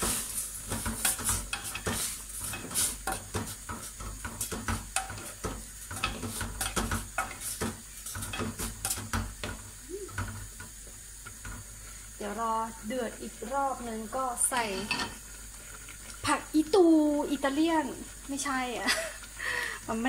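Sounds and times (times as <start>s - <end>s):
spoon clinking and scraping pot: 0.1s - 9.6s, 14.6s - 15.2s.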